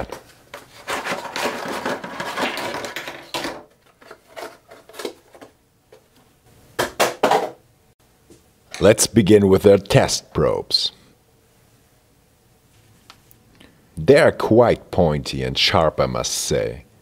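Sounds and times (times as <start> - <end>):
cardboard packaging rustling: 0.0 - 5.6
items clattering on wooden bench: 0.0 - 6.1, 6.8 - 7.6.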